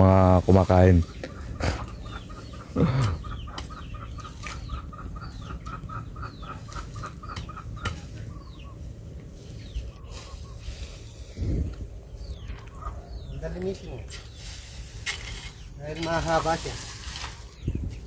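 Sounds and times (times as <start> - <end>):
hen clucking: 0.3 - 14.8.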